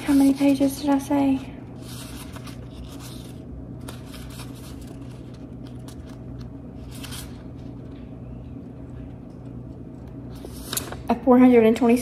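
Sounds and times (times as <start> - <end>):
steady low hum: 0.0 - 12.0
book pages rustling: 1.8 - 8.1.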